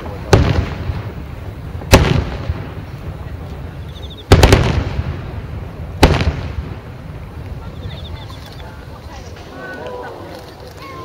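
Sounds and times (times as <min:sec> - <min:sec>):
firework shells booming: 0:00.0 - 0:08.2.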